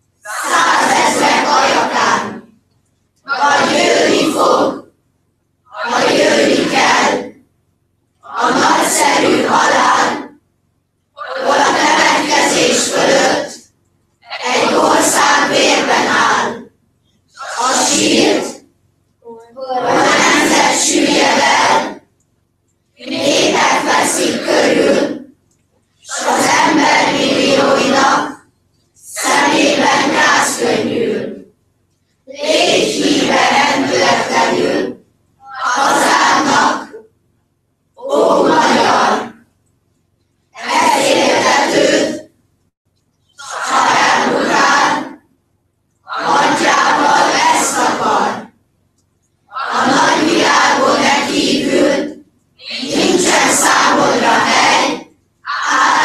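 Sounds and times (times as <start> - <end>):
group reciting in unison: 0.0 - 2.6, 3.2 - 5.0, 5.7 - 7.5, 8.2 - 10.4, 11.2 - 22.1, 23.0 - 31.6, 32.2 - 37.1, 38.0 - 39.5, 40.5 - 42.4, 43.3 - 45.3, 46.0 - 48.6, 49.4 - 56.0.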